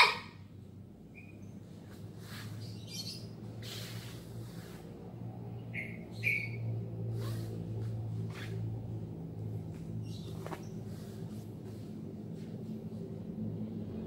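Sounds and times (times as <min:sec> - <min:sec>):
steady low hum: 0:00.3 - 0:14.0
bird chirping: 0:01.1 - 0:01.6, 0:02.6 - 0:03.4, 0:05.7 - 0:06.7.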